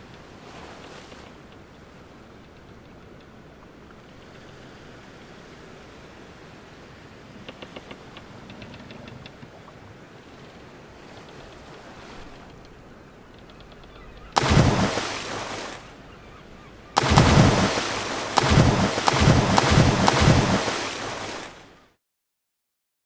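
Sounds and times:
soft water ambience: 0.0 - 22.0
loud noise burst: 17.0 - 20.9
low pulses and sharp clicks: 17.0 - 21.4.

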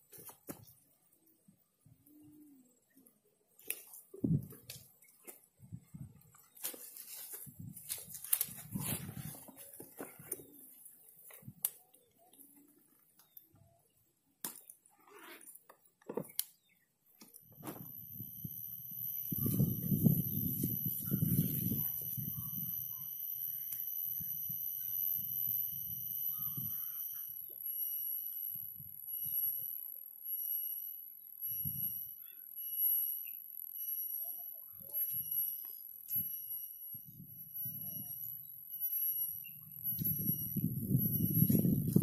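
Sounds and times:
cicada whining and pulsing: 17.4 - 42.0.

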